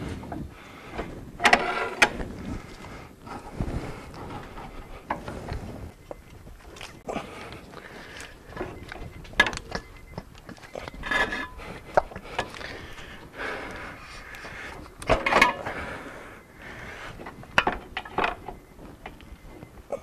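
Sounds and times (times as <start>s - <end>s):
metal tools clinking and scraping: 1.4s - 2.3s, 7.6s - 12.9s, 14.4s - 15.8s, 17.2s - 19.7s.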